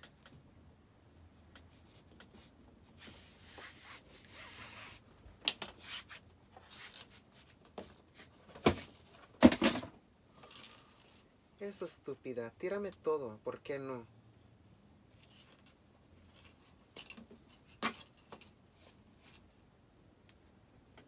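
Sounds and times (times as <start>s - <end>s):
fabric rustling and rubbing: 1.7s - 5.1s, 5.7s - 8.4s.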